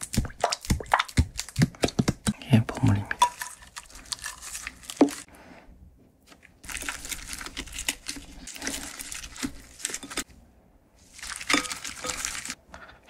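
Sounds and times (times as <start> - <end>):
sticky crackling and rustling: 6.2 - 10.4, 11.0 - 12.6.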